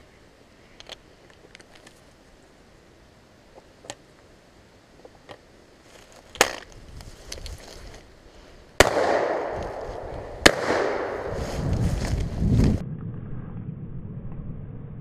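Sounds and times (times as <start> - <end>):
faint clicks and rustles: 0.8 - 2.6, 5.0 - 8.1
shotgun shot: 8.8 - 9.6, 10.4 - 11.3.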